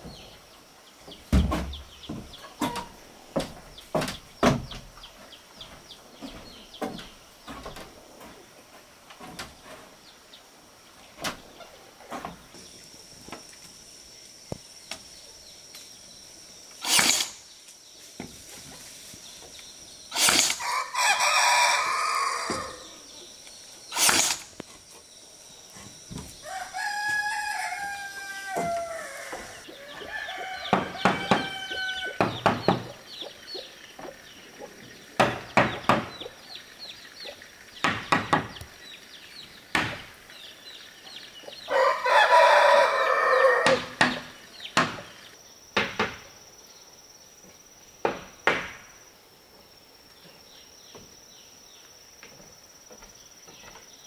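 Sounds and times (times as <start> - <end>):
chickens clucking: 1.8 - 4.0, 25.8 - 37.8, 41.0 - 44.2
loud short bursts of noise: 16.8 - 17.4, 20.1 - 20.7, 23.9 - 24.6
rooster crowing: 20.6 - 23.1, 26.4 - 32.4, 41.6 - 44.0.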